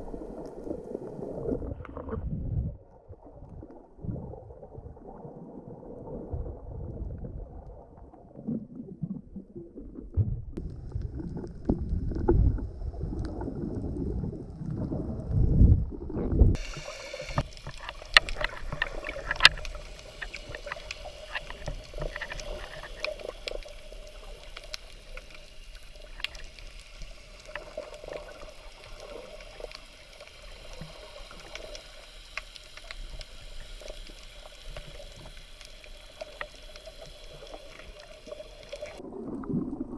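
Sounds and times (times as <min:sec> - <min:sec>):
water hiss with crackles: 0:00.0 - 0:02.1, 0:16.5 - 0:39.0
muffled underwater sloshing: 0:00.0 - 0:39.9.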